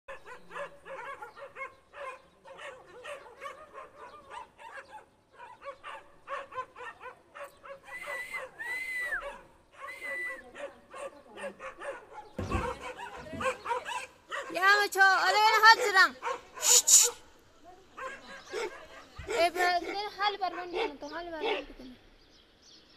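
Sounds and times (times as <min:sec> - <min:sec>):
dogs barking: 0:00.1 - 0:14.8, 0:15.5 - 0:17.3, 0:17.9 - 0:21.9
dog yelping: 0:10.6 - 0:14.6.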